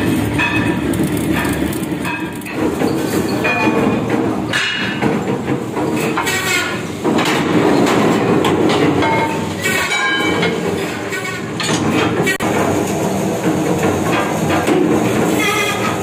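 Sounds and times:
steel plates clanking: 0:00.0 - 0:12.6
metal lathes running: 0:00.0 - 0:16.0.

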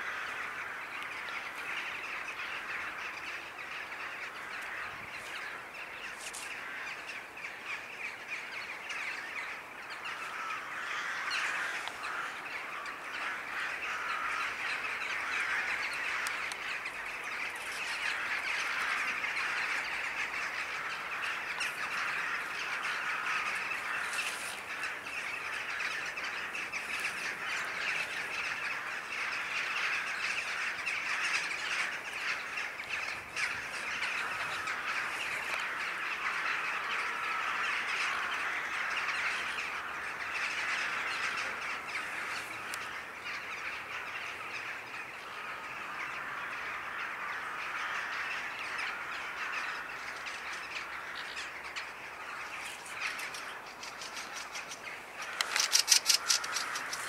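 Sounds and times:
crows cawing in chorus: 0:00.0 - 0:57.0.

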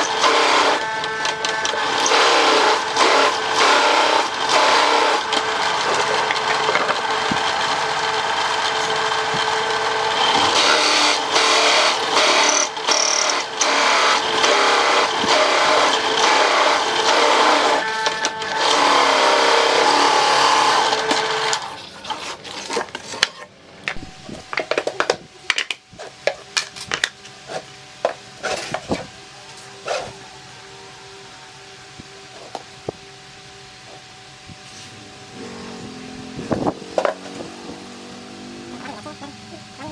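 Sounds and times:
drill press motor running: 0:00.0 - 0:23.2, 0:23.8 - 0:39.9
cutter grinding in wood: 0:00.0 - 0:23.3, 0:34.8 - 0:38.1.

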